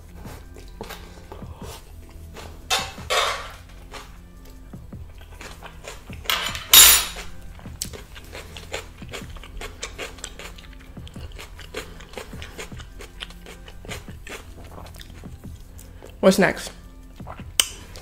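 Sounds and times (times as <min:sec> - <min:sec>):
chewing with crackling: 0:00.1 - 0:02.7, 0:03.6 - 0:06.3, 0:07.2 - 0:16.2, 0:16.8 - 0:18.0
crunching fried chicken: 0:07.2 - 0:16.0.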